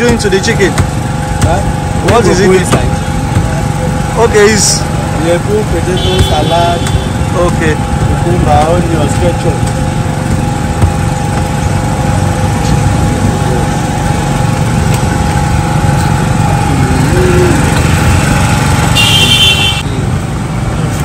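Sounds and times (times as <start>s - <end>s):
generator engine humming: 0.0s - 21.0s.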